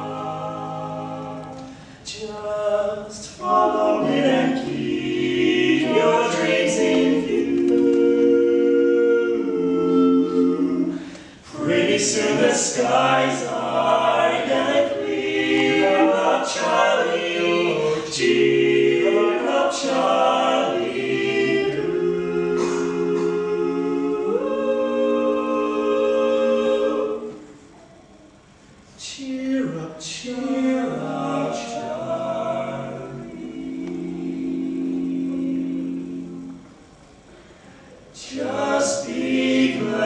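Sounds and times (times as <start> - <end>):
male quartet singing a cappella: 0.0 - 27.4, 29.0 - 36.6, 38.2 - 40.0.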